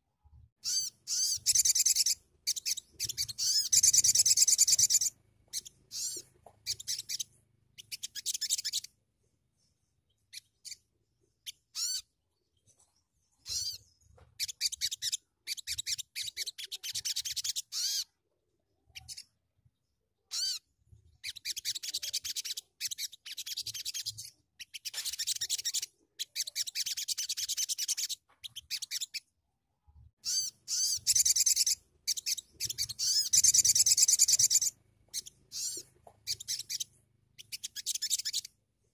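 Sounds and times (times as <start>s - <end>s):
bird singing high-pitched trills: 0.6s - 8.9s, 21.2s - 29.2s, 30.2s - 38.6s.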